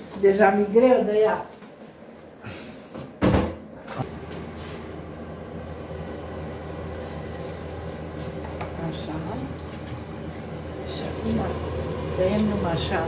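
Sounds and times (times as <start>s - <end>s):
low hum: 4.0s - 13.0s.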